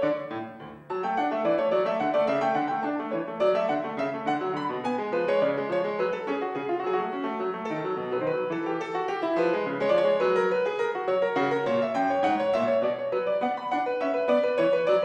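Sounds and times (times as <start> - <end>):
classical piano piece: 0.0 - 15.0.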